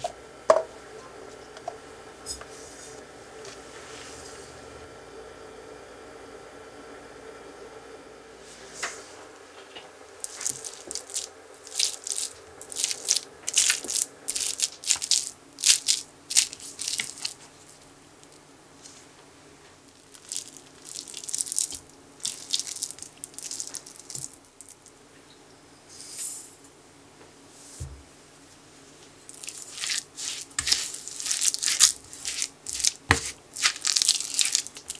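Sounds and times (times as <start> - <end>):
potato masher squishing on plate: 10.2 - 17.4, 29.3 - 34.9
mash scraped into glass bowl: 29.6 - 33.8.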